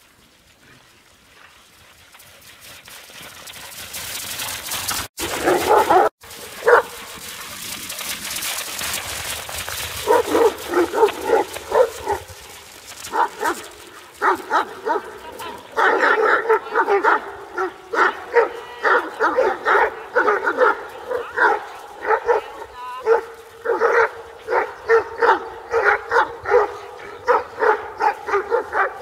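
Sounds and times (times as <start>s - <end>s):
dogs barking and yipping: 5.0s - 7.2s, 9.8s - 29.0s.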